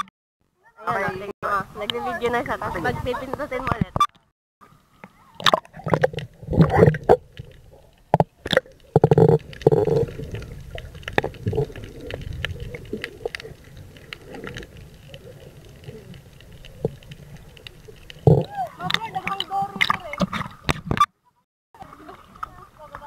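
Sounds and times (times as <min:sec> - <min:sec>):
water splashing against camera: 0:00.9 - 0:21.1, 0:21.8 - 0:23.0
muffled underwater rumble: 0:04.8 - 0:20.7.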